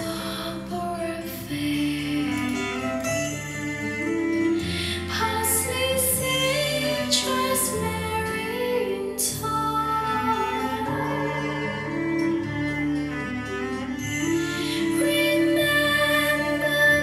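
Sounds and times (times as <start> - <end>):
music over loudspeakers: 4.7 - 17.0.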